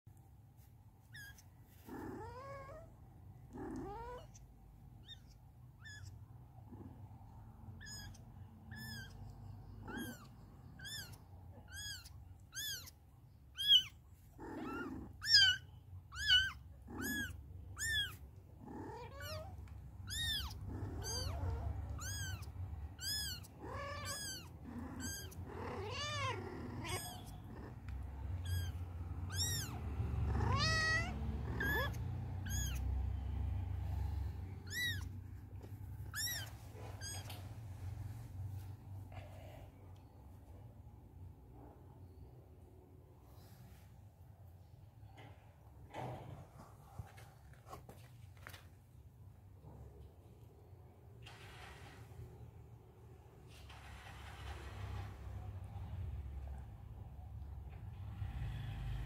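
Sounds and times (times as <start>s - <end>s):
kittens mewing: 1.0s - 37.6s.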